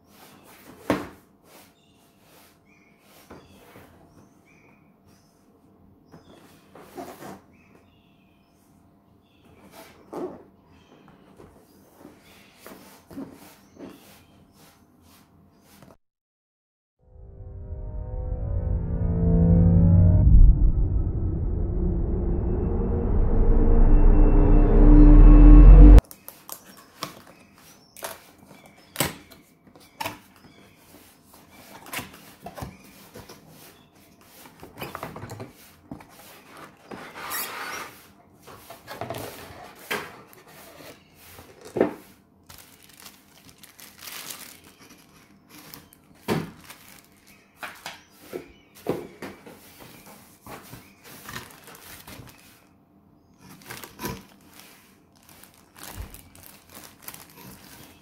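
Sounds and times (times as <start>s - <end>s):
plastic bags and paper crinkling: 39.1s - 48.0s, 49.7s - 52.7s, 53.4s - 58.0s.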